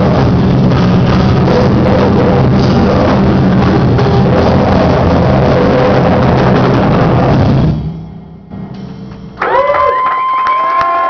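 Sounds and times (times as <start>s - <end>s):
amplifier hum: 0.0s - 9.4s.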